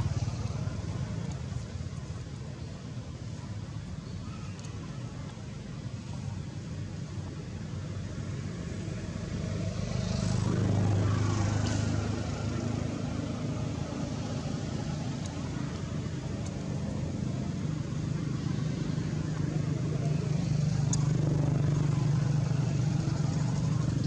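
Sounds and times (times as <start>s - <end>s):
vehicle engine passing by: 8.5s - 24.0s.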